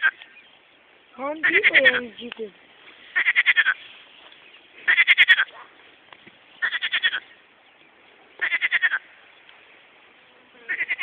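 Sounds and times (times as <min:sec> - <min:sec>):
frogs calling in pulses: 0:00.0 - 0:00.3, 0:01.3 - 0:02.2, 0:03.1 - 0:03.8, 0:04.8 - 0:05.6, 0:06.6 - 0:07.4, 0:08.4 - 0:09.2, 0:10.6 - 0:11.0.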